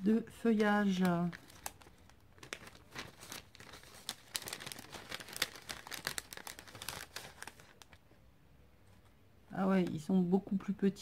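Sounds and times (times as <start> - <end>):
paper packet crinkling: 0.0 - 8.0.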